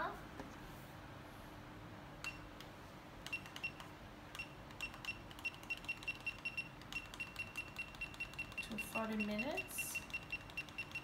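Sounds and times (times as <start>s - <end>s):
kitchen timer beeps: 4.4s - 11.0s.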